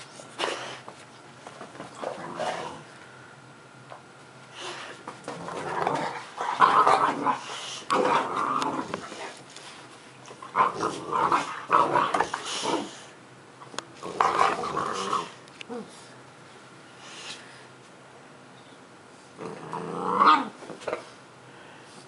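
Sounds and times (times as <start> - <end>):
puppy growling in play: 1.9 - 3.0, 4.6 - 9.5, 10.3 - 13.1, 14.0 - 16.2, 19.3 - 21.2.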